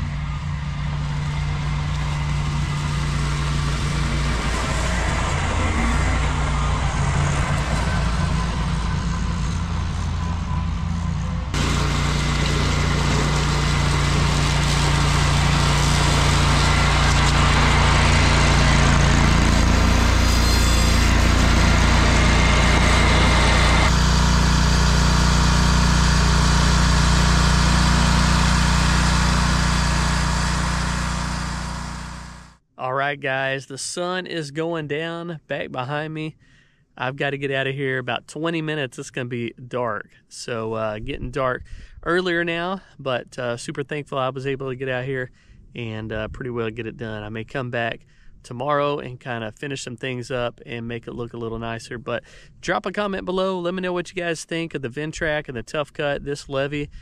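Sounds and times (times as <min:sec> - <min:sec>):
tractor engine mowing grass: 0:00.0 - 0:32.6.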